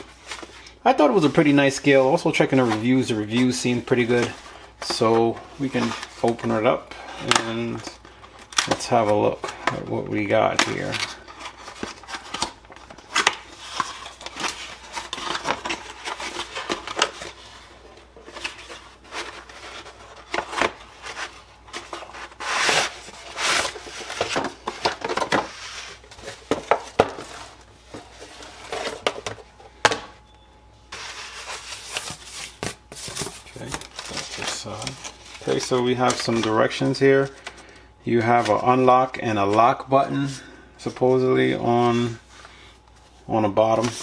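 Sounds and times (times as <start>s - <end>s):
cardboard scraping and rustling: 10.2s - 29.4s, 30.9s - 36.7s.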